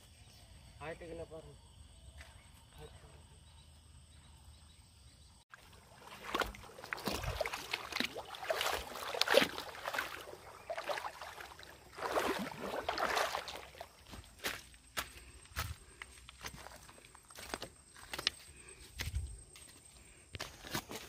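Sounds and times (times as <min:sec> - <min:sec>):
feet splashing through river water: 0:05.5 - 0:19.3.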